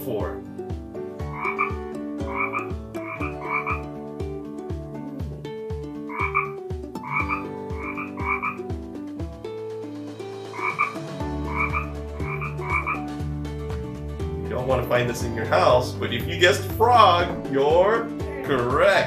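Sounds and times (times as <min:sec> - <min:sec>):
frog croaking: 0:01.2 - 0:03.9, 0:06.1 - 0:08.7, 0:10.5 - 0:13.1.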